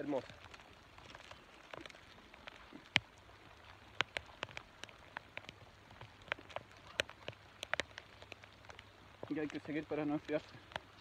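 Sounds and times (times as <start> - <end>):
faint steady rain hiss: 0.0 - 11.0
raindrops ticking: 0.0 - 11.0.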